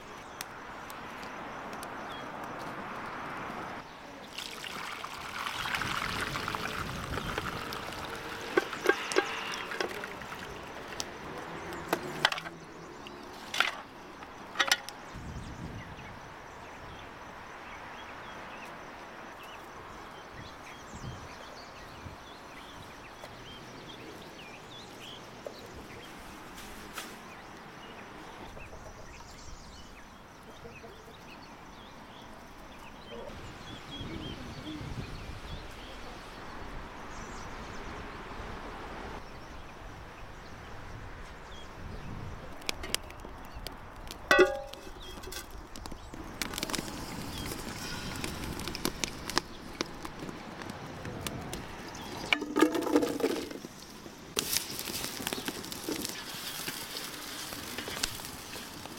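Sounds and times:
broth pouring into bowl: 0:04.3 - 0:10.9.

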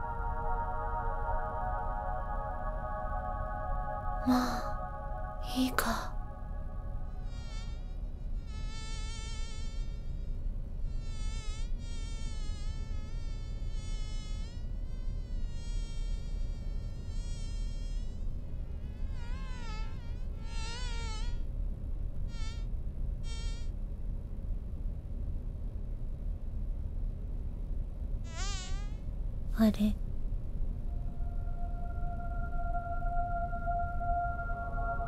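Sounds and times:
low steady hum: 0:00.0 - 0:19.2, 0:21.4 - 0:35.0
mosquito whining: 0:00.0 - 0:21.4, 0:23.3 - 0:23.7, 0:28.3 - 0:29.0, 0:30.9 - 0:35.0.

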